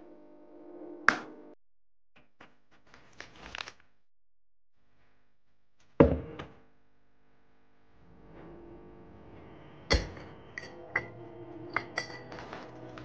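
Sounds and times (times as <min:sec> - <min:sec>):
glass jar lid clinking: 0:09.9 - 0:11.1, 0:11.7 - 0:12.6.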